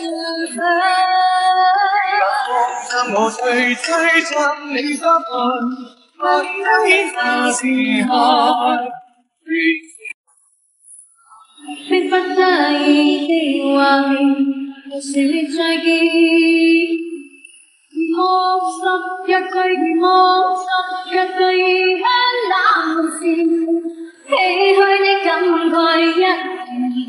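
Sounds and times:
high voice singing: 0.0s - 10.1s, 11.4s - 17.3s.

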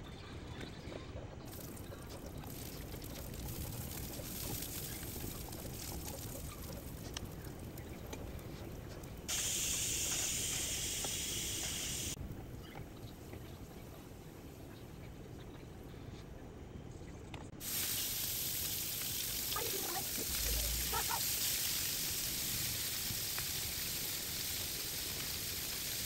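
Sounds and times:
garlic sizzling in hot oil: 1.5s - 12.2s, 17.6s - 26.0s.

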